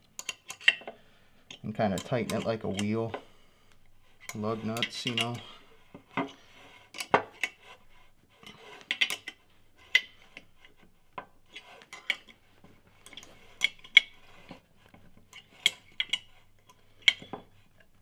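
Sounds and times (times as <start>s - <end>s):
wrench clicking on metal bolts: 0.2s - 0.9s, 1.5s - 3.2s.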